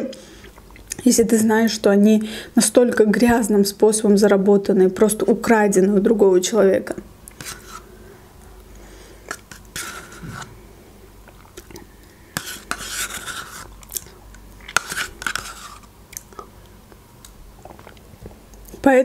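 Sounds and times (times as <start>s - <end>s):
spoon scraping plastic cup: 7.4s - 7.9s, 9.3s - 10.5s, 12.3s - 13.8s, 14.6s - 15.9s
wet mouth sounds: 11.2s - 12.0s, 17.2s - 18.8s.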